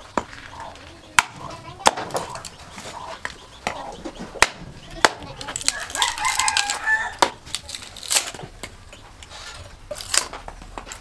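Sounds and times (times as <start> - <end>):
rooster crowing: 5.7 - 7.4.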